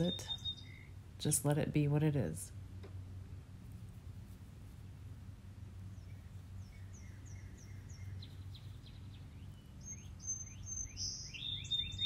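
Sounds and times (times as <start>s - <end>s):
birds chirping: 0.0s - 1.0s, 5.9s - 12.0s
faint low hum: 0.0s - 12.0s.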